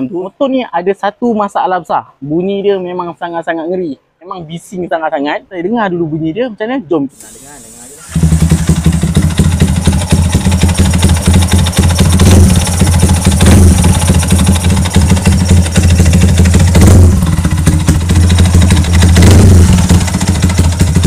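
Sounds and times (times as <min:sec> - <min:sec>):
motorcycle engine rattling: 0:08.0 - 0:21.0.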